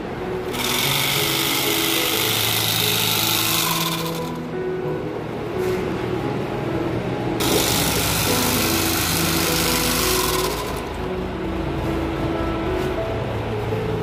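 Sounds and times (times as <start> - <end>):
electric bag sewing machine stitching: 0.5 - 4.5, 7.4 - 11.1.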